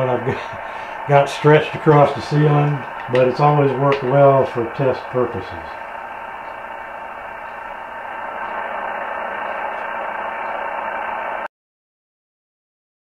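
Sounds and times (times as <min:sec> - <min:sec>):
radio static hiss: 0:00.0 - 0:11.5.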